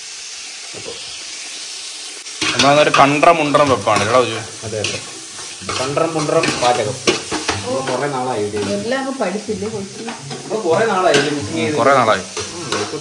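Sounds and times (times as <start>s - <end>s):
onions sizzling in oil: 0.0s - 13.0s
voices talking: 2.4s - 13.0s
metal spoon scraping a pot: 9.9s - 13.0s.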